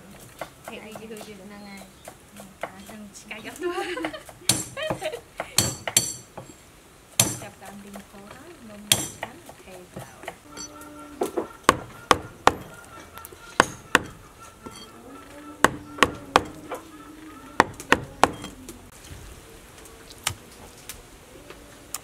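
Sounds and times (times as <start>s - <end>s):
knife chopping on wooden block: 7.2s - 7.5s, 11.2s - 12.8s, 13.5s - 14.9s, 15.6s - 16.8s, 17.6s - 18.6s.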